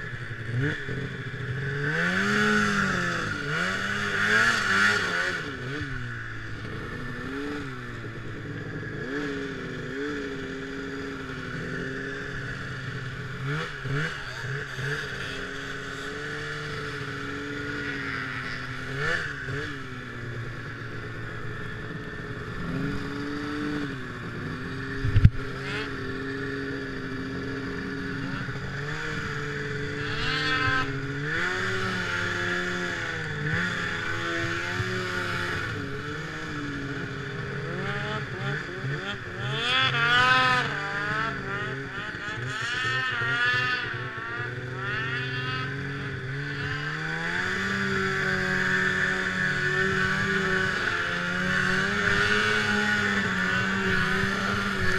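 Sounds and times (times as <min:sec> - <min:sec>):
snowmobile engine revving: 0:00.0 - 0:54.9.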